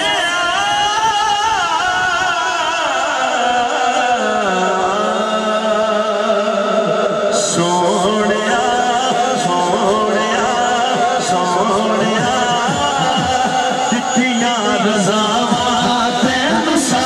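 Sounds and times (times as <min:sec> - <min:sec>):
man singing through sound system: 0:00.0 - 0:17.0.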